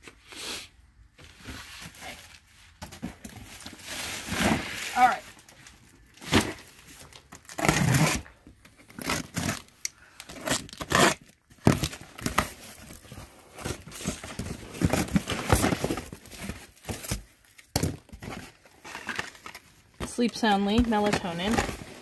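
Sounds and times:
small boxes shifting: 1.1 - 22.0
tape and cardboard tearing: 3.2 - 22.0.

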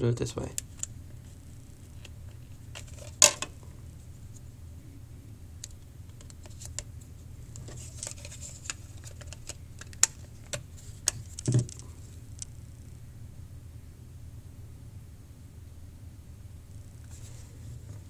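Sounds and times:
low steady hum: 0.0 - 18.0
plastic clicks and scraping: 7.6 - 11.8.

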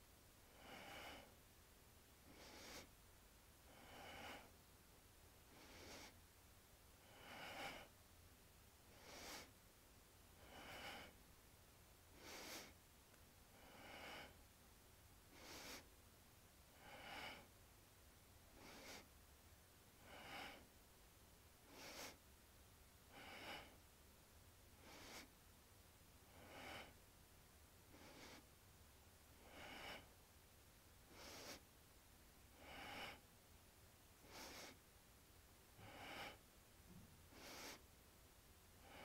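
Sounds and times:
rhythmic breathing: 2.2 - 2.9, 5.5 - 6.2, 7.0 - 8.0, 8.9 - 9.6, 10.4 - 11.2, 12.1 - 12.8, 15.3 - 15.9, 18.5 - 19.1, 21.6 - 22.2, 24.8 - 25.3, 27.9 - 28.5, 31.1 - 31.7, 34.2 - 34.8, 37.3 - 37.9.

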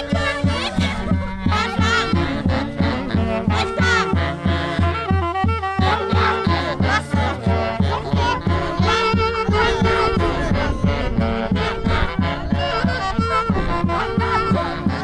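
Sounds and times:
steady drum beat: 0.0 - 5.2
wind and string melody: 0.0 - 15.0.

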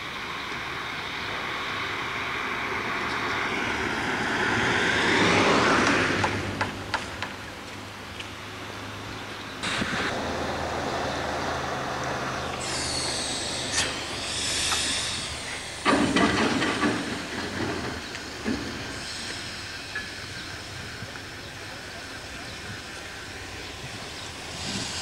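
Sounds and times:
train engine running: 0.0 - 4.4, 5.3 - 25.0
hiss of escaping steam: 12.5 - 23.2, 23.9 - 25.0
loud clatter: 15.8 - 18.8.

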